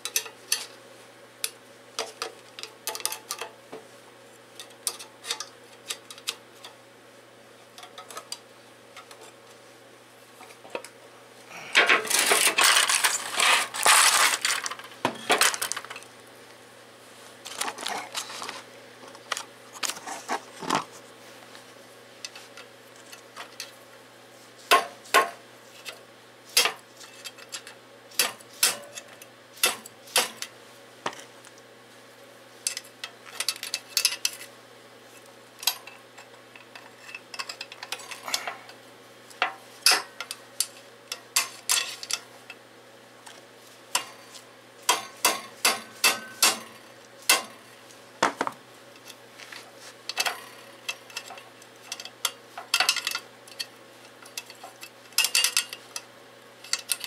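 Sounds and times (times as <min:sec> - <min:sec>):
screwdriver clinking on metal: 0:50.1 - 0:57.0.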